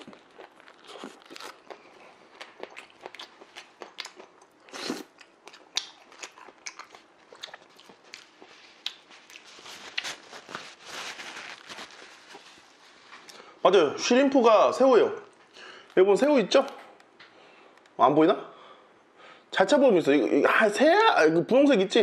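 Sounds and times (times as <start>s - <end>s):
man chewing food: 0.0s - 13.5s.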